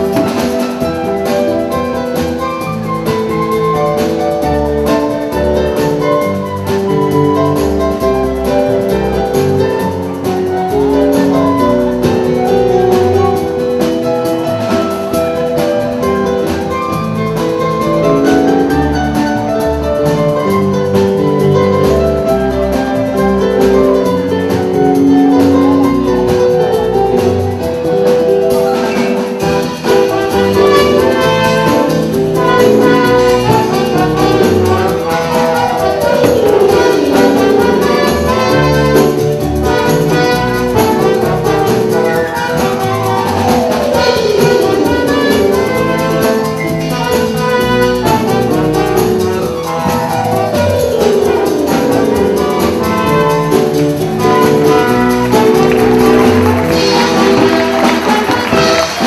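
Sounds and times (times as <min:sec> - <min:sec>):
brass band music: 0:00.0 - 0:59.0.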